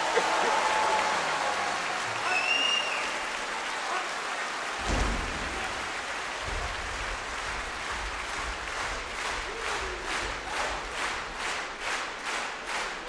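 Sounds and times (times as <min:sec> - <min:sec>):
audience applauding: 0:00.0 - 0:13.0
low thud: 0:04.8 - 0:05.8.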